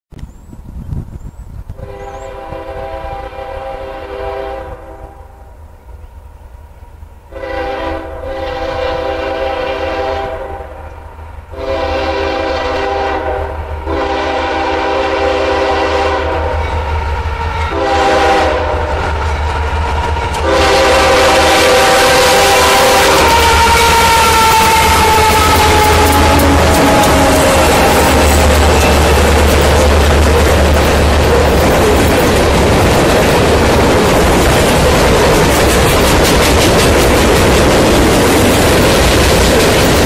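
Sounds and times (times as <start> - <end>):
train rumble: 0.2 - 40.0
locomotive air horn blasts: 1.8 - 5.5, 7.3 - 10.9, 11.5 - 16.9, 17.5 - 19.2, 20.3 - 32.2.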